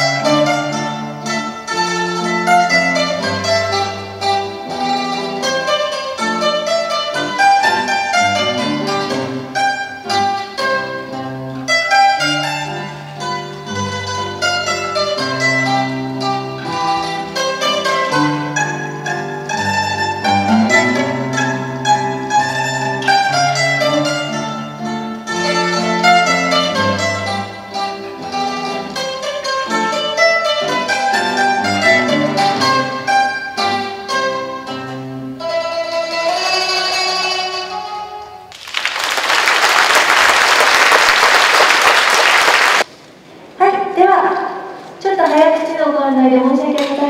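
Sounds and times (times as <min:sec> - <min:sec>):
classical guitar bass notes: 0:00.0 - 0:38.5
plucked mandolin melody: 0:00.0 - 0:38.6
audience applauding: 0:38.5 - 0:42.9.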